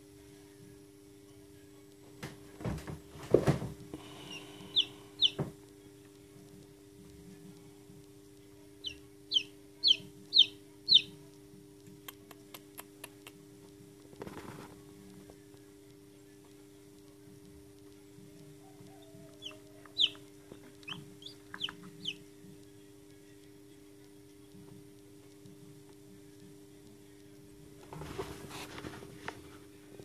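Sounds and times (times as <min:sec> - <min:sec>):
chick peeping: 0:04.0 - 0:05.5, 0:08.8 - 0:11.2, 0:18.6 - 0:22.3.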